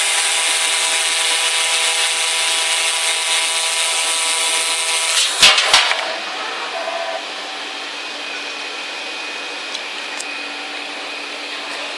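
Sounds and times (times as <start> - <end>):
laser cutter hissing: 0.0 - 8.3.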